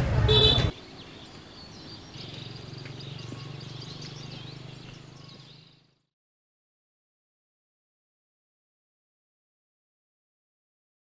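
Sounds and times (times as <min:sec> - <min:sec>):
small birds chirping: 0:00.3 - 0:06.1.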